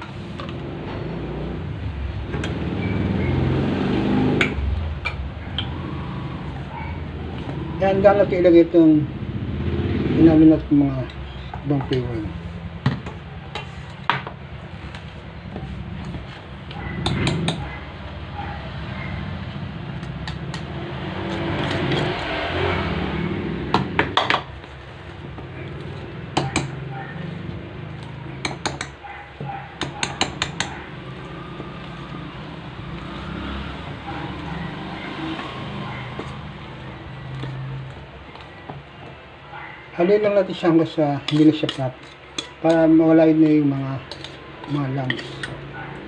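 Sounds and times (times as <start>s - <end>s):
fork stirring batter in metal bowl: 19.4s - 23.0s, 40.0s - 45.8s
fork clinking against bowl: 41.2s - 42.8s.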